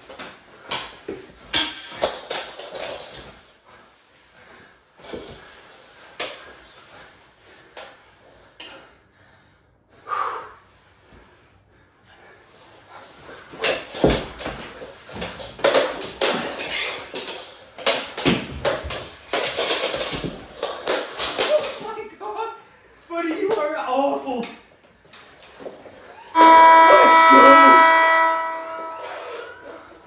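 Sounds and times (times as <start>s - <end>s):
hockey sticks clacking: 0.0s - 3.4s, 13.5s - 22.0s.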